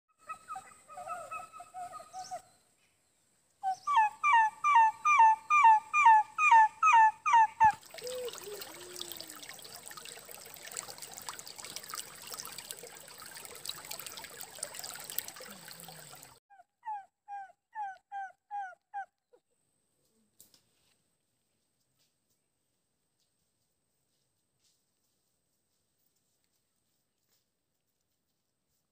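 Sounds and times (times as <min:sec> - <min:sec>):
stream rippling over rocks: 0:07.7 - 0:16.4.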